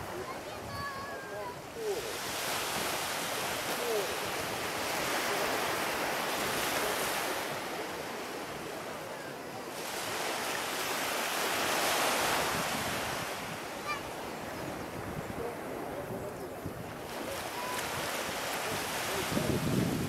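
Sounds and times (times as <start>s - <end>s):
waves breaking on shore: 0.0s - 20.0s
wind buffeting microphone: 10.1s - 20.0s.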